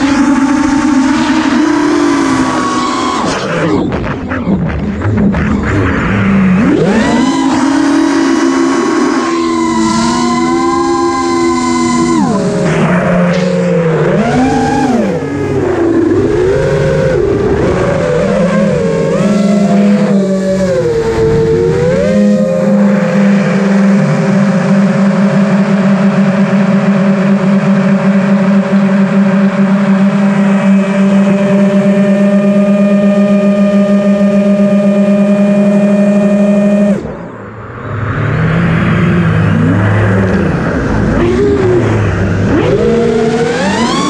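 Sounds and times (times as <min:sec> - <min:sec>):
drone motors whining: 0:00.0 - 0:44.0.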